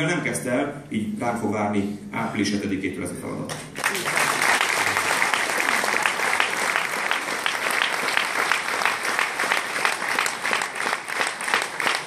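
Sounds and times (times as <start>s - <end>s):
audience applauding loudly: 3.8s - 12.0s.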